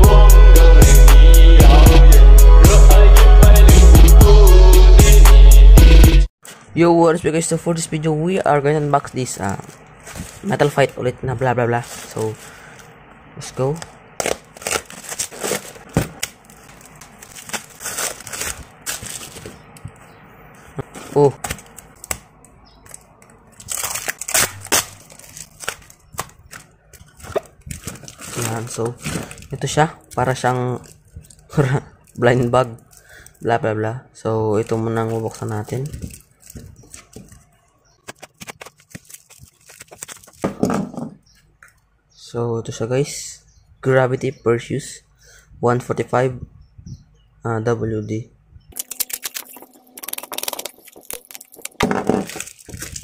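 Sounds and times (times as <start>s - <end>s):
plastic wrapping tearing and crinkling: 14.2s - 19.8s, 21.4s - 33.4s, 34.6s - 40.5s, 48.8s - 53.0s.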